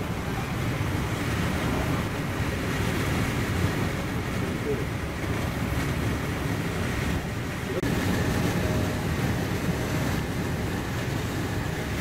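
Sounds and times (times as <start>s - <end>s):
air noise: 0.0s - 12.0s
train wheels on rail rumble: 0.0s - 12.0s.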